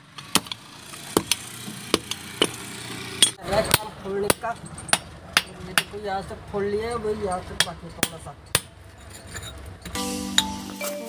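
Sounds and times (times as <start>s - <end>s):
hammer striking steel chisel: 0.2s - 2.6s, 3.2s - 6.0s, 7.5s - 8.8s.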